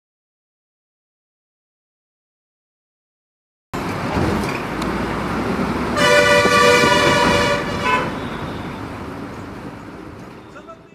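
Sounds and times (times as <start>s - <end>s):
bus engine and road noise: 3.8s - 10.9s
bus horn blast: 5.9s - 8.9s.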